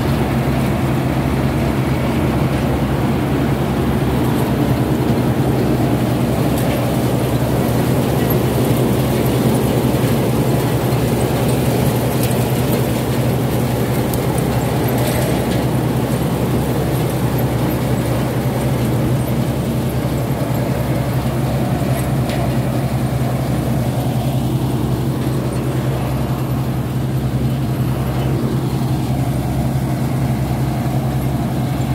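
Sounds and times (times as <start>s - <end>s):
farm machinery humming: 0.0s - 31.9s.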